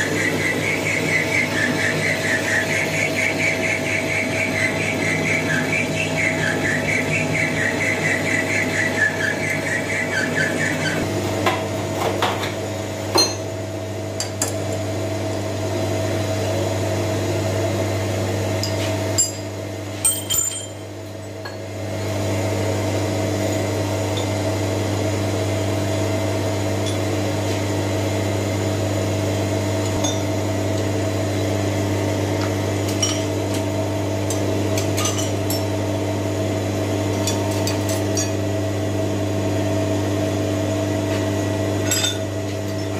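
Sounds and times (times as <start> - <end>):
metal lathe motor humming: 0.0 - 19.6, 20.5 - 42.9.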